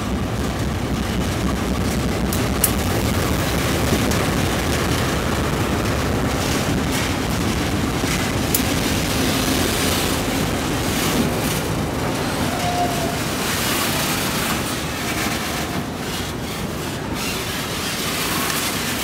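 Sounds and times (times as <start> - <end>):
freight train wheels rumbling: 0.0 - 19.0
sharp clicks: 2.3 - 3.0.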